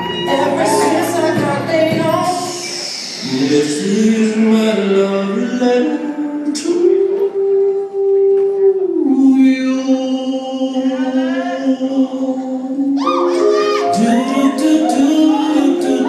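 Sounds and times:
dance music with swooping tones: 0.0s - 3.8s.

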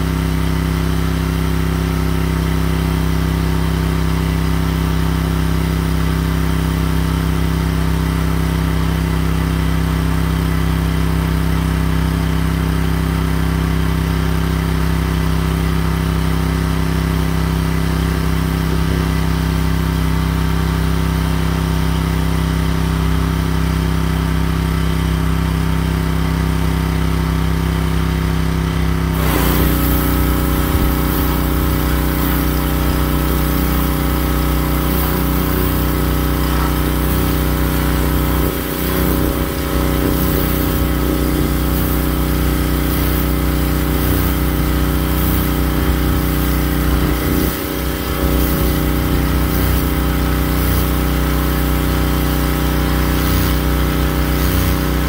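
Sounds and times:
pressure washer engine running: 0.0s - 55.0s
high-pressure water spray hiss: 29.1s - 55.0s.

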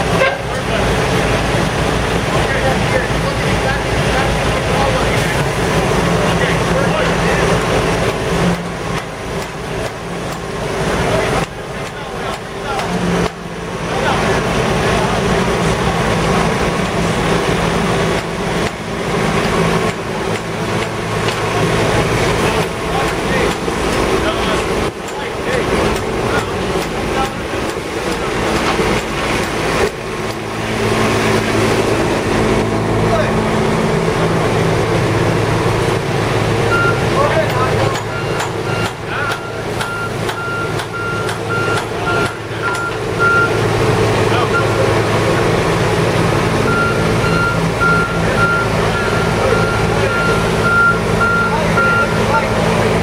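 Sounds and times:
diesel engine drone: 0.0s - 53.0s
backup alarm beeping: 36.7s - 43.7s, 46.6s - 52.4s.

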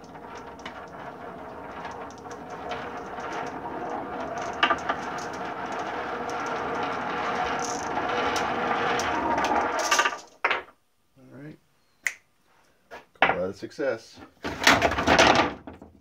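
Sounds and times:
marbles clicking together: 0.0s - 10.3s
marbles rolling on wooden track: 0.0s - 10.7s, 14.4s - 15.9s.

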